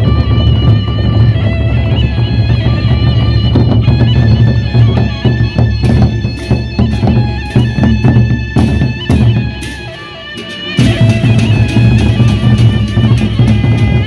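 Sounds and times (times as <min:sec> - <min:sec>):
barrel drums beaten with sticks: 0:02.1 - 0:14.0
cymbal crashes: 0:09.5 - 0:14.0.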